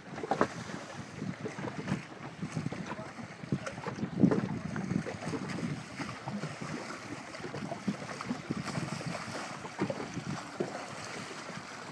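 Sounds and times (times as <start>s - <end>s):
choppy water splashing: 0.0s - 11.9s
wind buffeting microphone: 0.0s - 11.9s.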